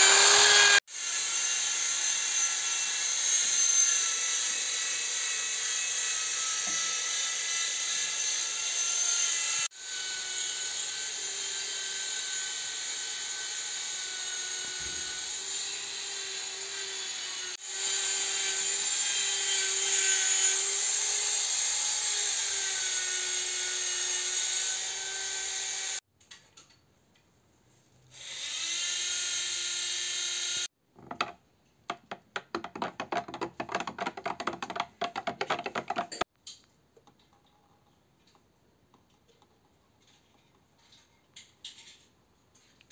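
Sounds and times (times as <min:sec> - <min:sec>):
metal stick knocking plastic cup: 0:31.0 - 0:36.2.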